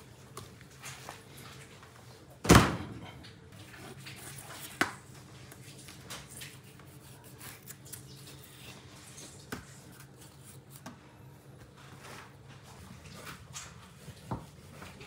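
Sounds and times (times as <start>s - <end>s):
knife cutting meat: 6.5s - 8.8s.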